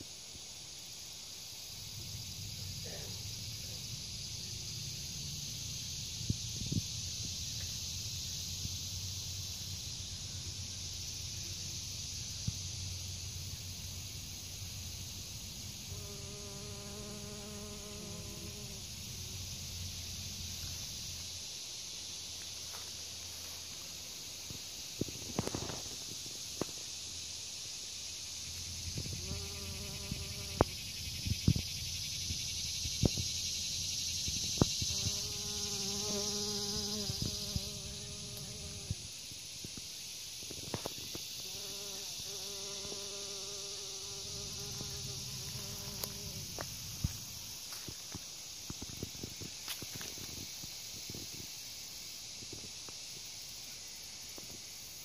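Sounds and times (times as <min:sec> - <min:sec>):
high-pitched insect chorus: 0:00.0 - 0:55.0
steady high hiss: 0:00.0 - 0:55.0
bee buzzing: 0:15.9 - 0:19.1, 0:29.1 - 0:30.7, 0:34.9 - 0:39.0, 0:41.4 - 0:46.6.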